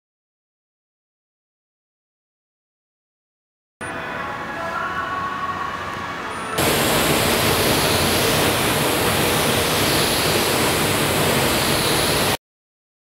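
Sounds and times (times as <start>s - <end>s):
spray gun hissing compressed air: 6.6s - 12.4s.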